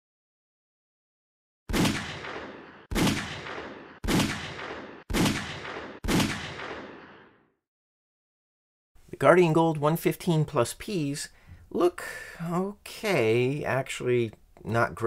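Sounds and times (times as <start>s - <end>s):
pistol shots with echo: 1.7s - 7.2s.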